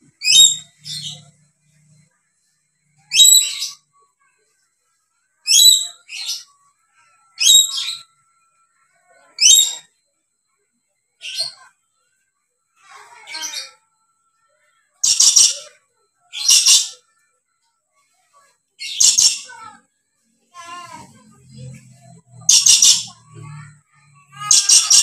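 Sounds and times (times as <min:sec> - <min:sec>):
parrot shrill calls: 0:16.3 - 0:17.0, 0:24.4 - 0:25.0.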